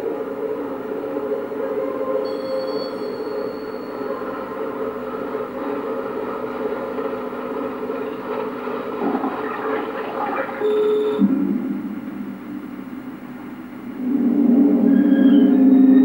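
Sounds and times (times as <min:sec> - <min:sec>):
scratchy noise drone: 0:04.1 - 0:16.0.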